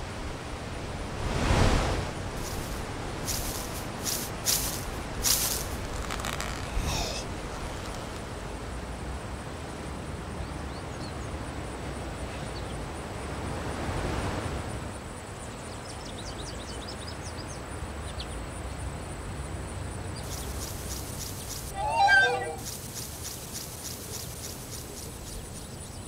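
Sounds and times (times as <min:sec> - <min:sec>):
open-air hiss: 0:00.0 - 0:26.0
faint high chirps: 0:20.2 - 0:26.0.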